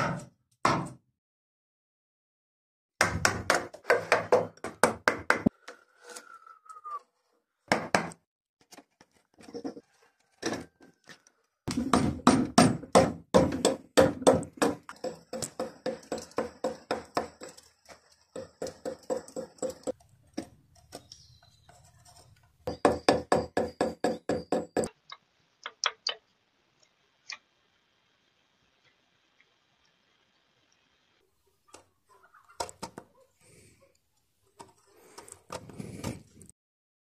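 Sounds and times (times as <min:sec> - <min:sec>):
chisel knocking on wood: 0:11.7 - 0:17.5, 0:22.7 - 0:24.9.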